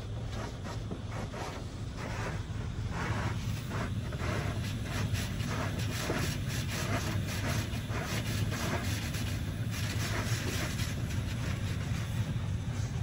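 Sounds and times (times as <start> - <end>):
water spraying on car: 0.1 - 12.6
low hum: 11.4 - 13.0.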